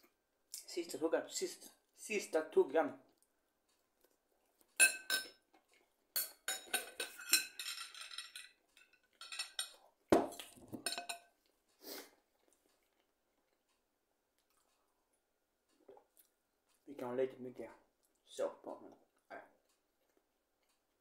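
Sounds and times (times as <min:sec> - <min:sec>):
fork and knife scraping a plate: 0:06.2 - 0:09.8.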